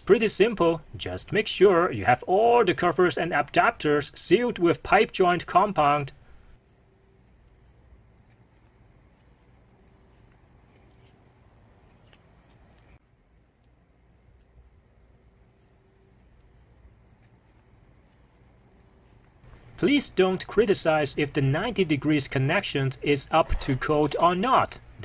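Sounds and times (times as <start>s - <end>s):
faint cricket chirping: 6.5s - 20.6s.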